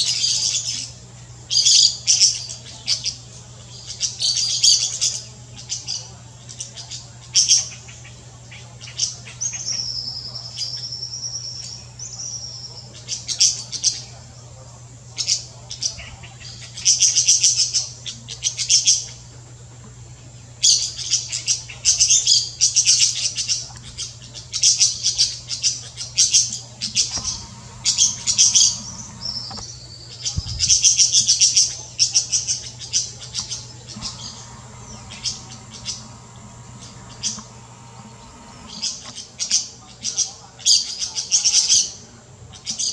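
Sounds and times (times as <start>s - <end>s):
parakeets chirping: 20.6s - 40.3s.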